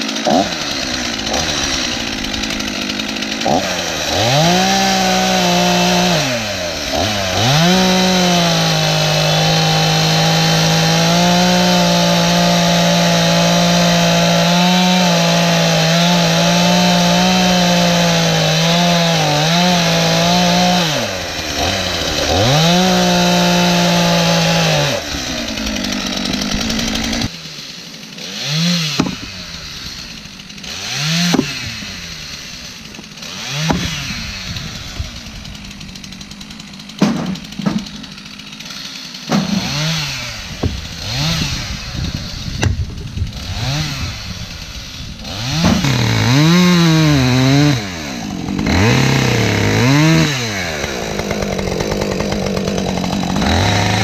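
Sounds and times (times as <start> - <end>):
chainsaw cutting logs: 0.0 - 54.0
axe striking logs: 28.8 - 36.1, 36.9 - 41.6, 42.5 - 43.5, 45.3 - 54.0.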